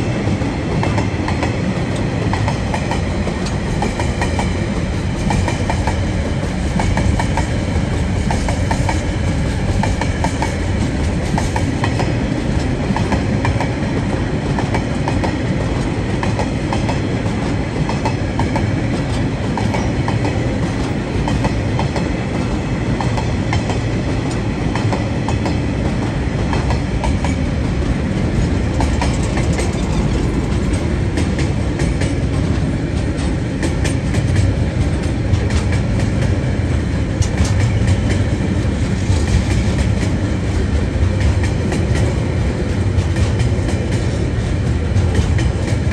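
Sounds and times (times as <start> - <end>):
train wheels rumbling on rails: 0.0 - 45.9.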